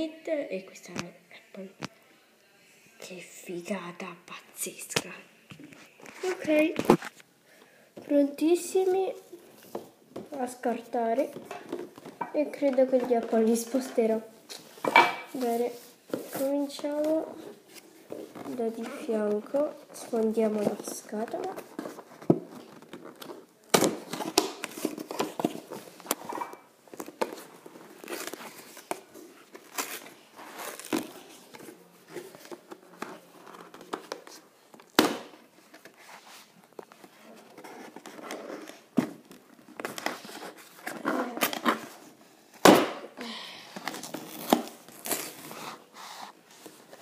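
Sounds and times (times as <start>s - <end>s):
cardboard ripping and crinkling: 27.0s - 31.6s, 43.8s - 46.2s.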